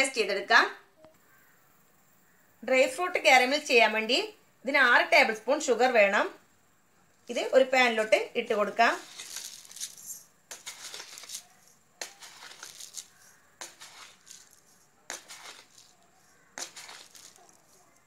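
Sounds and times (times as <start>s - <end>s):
sugar pattering into pan: 8.6s - 18.0s.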